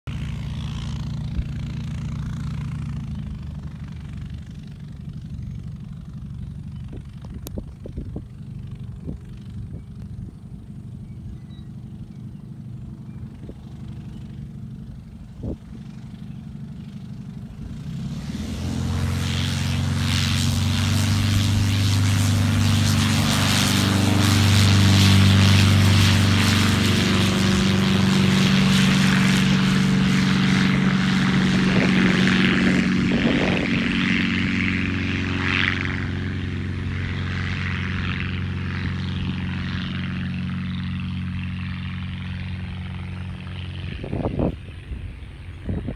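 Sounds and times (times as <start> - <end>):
light aircraft propeller engine drone: 0.0 - 45.9.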